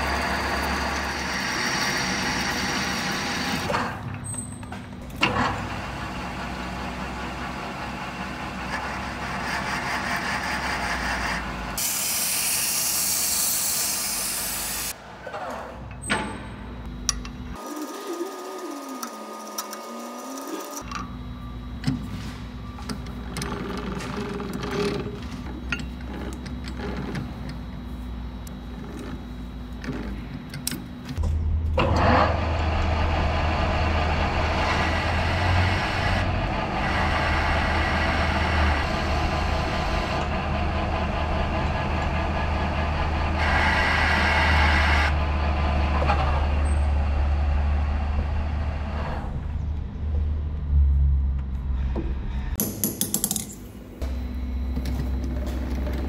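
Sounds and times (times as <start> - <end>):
lathe motor hum: 17.5 - 21.4.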